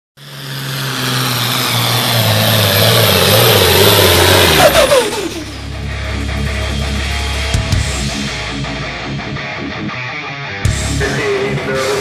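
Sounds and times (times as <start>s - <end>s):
diesel engine under load: 0.2s - 9.2s.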